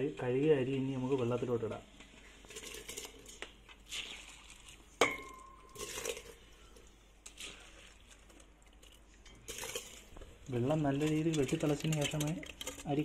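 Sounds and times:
metallic clink of pots: 5.0 - 6.4.

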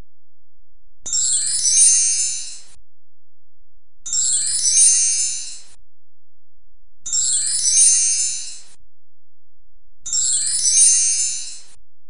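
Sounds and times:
glittering bell-like chime: 1.3 - 2.6, 4.3 - 5.6, 7.3 - 8.6, 10.2 - 11.6.

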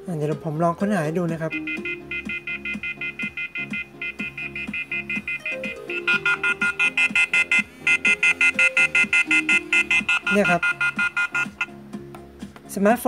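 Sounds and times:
phone ringtone rapid beeps: 1.5 - 11.7.

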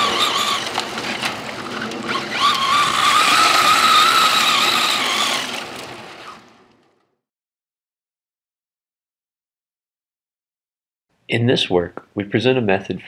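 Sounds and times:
electric motor whining: 0.0 - 6.8
tyres scrabbling on loose dirt: 0.0 - 7.0.

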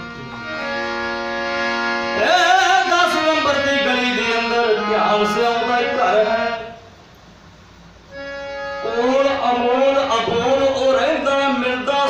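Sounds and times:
harmonium chord: 0.0 - 6.9, 7.9 - 12.0
man singing devotional line: 2.0 - 6.9, 8.8 - 12.0.

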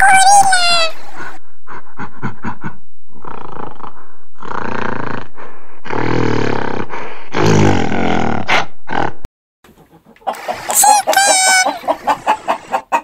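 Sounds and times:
gorilla grunts: 2.6 - 9.2
gorilla roars: 3.1 - 9.2.

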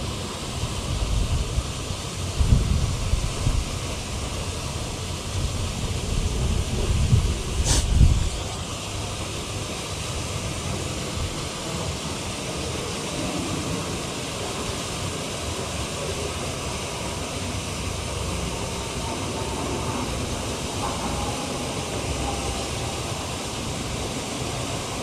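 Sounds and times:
wind on microphone: 0.0 - 9.3.

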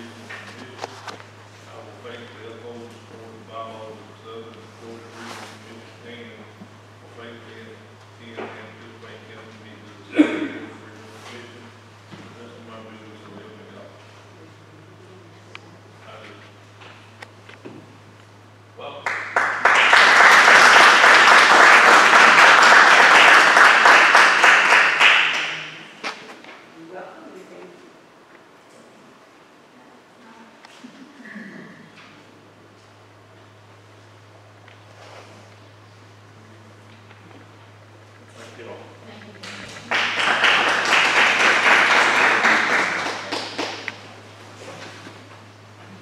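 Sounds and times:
crowd applauding: 19.0 - 25.9, 39.8 - 44.1.

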